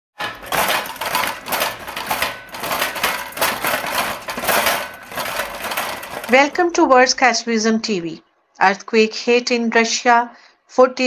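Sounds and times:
household objects rattling and clattering: 0:00.1 - 0:07.2.

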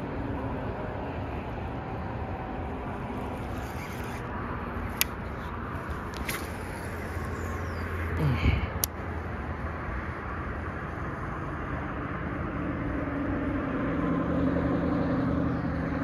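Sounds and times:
low rumble of road traffic: 0:00.0 - 0:16.0
fishing reel clicks: 0:02.9 - 0:04.3, 0:04.9 - 0:07.7.

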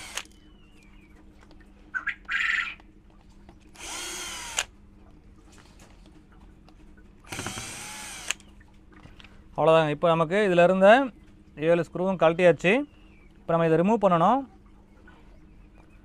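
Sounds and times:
cordless drill spinning: 0:00.0 - 0:00.3, 0:03.8 - 0:04.7, 0:07.3 - 0:08.4.

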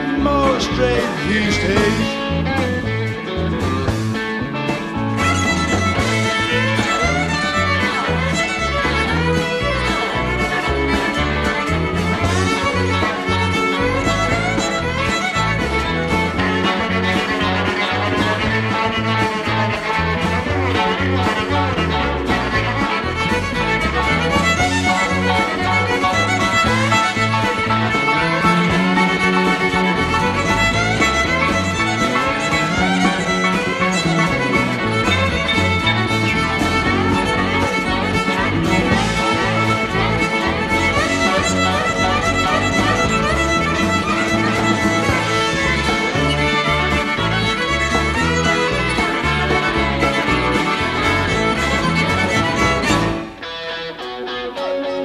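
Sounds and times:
rock band playing live: 0:00.0 - 0:55.0
violin lead line: 0:00.0 - 0:55.0.

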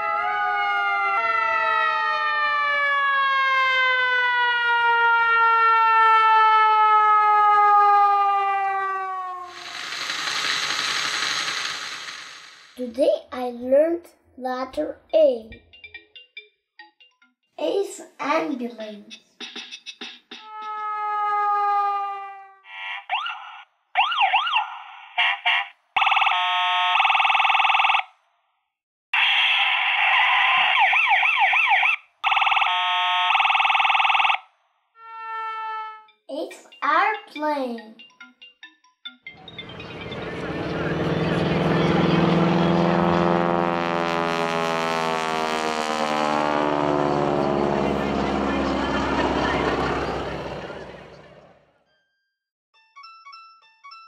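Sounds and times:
siren wailing: 0:00.0 - 0:11.7, 0:20.4 - 0:28.1, 0:29.2 - 0:36.2, 0:39.4 - 0:51.7
fast pulsing electronic tone: 0:09.5 - 0:12.8, 0:47.1 - 0:51.5
toy car motor whirring: 0:09.5 - 0:12.8
toy siren wailing: 0:20.4 - 0:28.1, 0:29.2 - 0:36.2.

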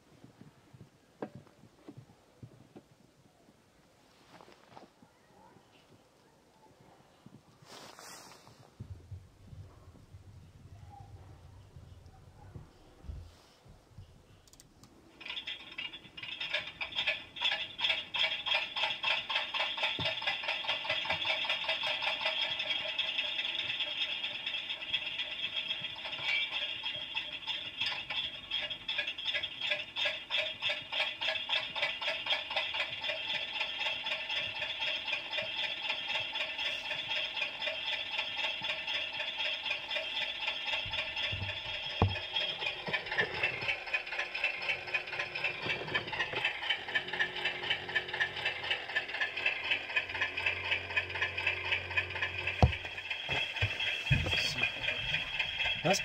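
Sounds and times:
model locomotive engine rattling: 0:14.5 - 0:56.0.

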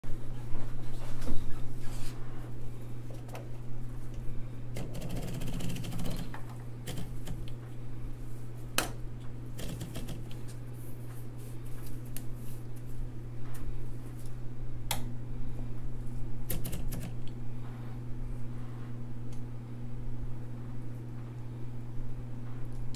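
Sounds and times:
typewriter motor humming: 0:04.7 - 0:07.6, 0:09.5 - 0:10.4, 0:16.5 - 0:17.3.

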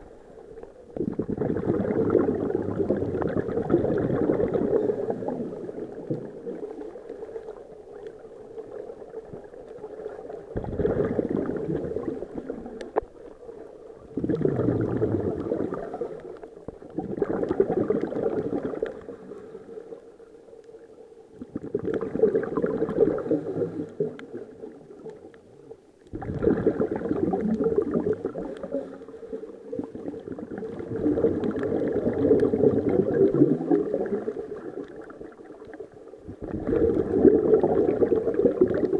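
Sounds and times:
diver exhaling air bubbles: 0:00.9 - 0:06.7, 0:10.5 - 0:13.0, 0:14.0 - 0:19.4, 0:21.4 - 0:24.8, 0:26.1 - 0:35.4, 0:36.3 - 0:38.9.

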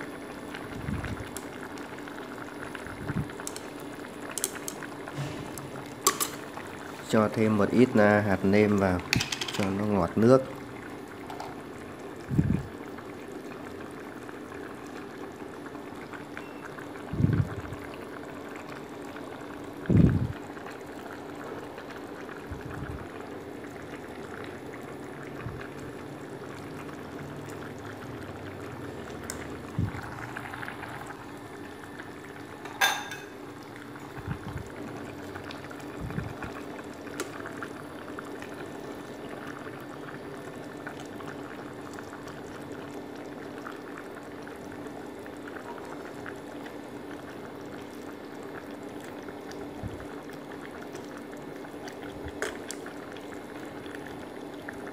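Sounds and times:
broth bubbling: 0:00.0 - 0:54.9
low steady hum: 0:00.0 - 0:54.9.

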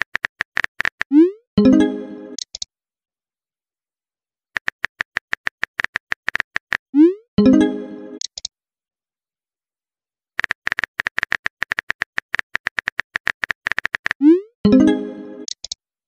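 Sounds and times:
phone keyboard clicks: 0:04.6 - 0:06.8, 0:08.2 - 0:08.5, 0:10.4 - 0:14.2, 0:15.4 - 0:15.8.

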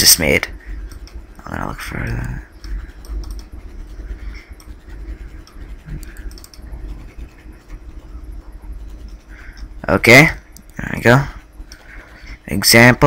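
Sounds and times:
mouse and keyboard clicks: 0:05.4 - 0:07.1.

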